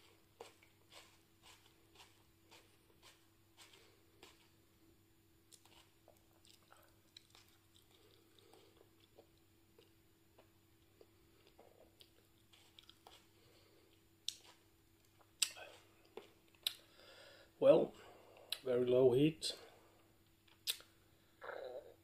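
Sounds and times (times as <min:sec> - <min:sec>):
wet chewing clicks: 0:05.5 - 0:09.9.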